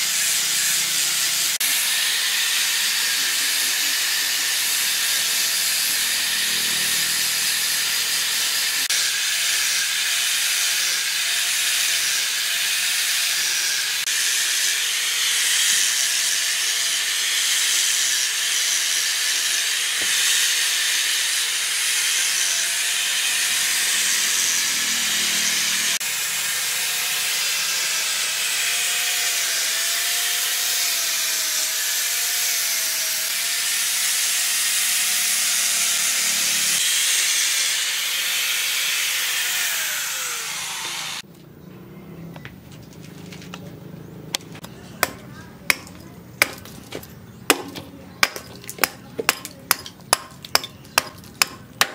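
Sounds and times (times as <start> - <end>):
sanding disc hissing on wood: 0.0 - 41.2
angle grinder motor whine: 0.0 - 41.3.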